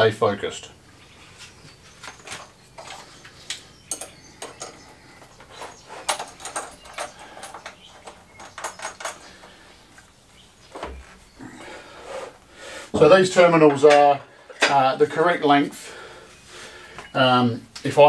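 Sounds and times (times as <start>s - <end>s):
metal bars and bolts clinking: 3.9s - 9.4s.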